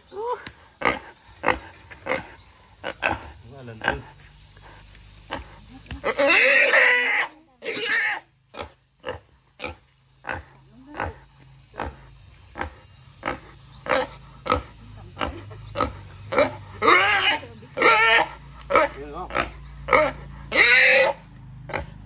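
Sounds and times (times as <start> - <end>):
wild boar grunting: 0.7 - 22.0
wild boar squealing: 6.0 - 8.3, 15.3 - 22.0.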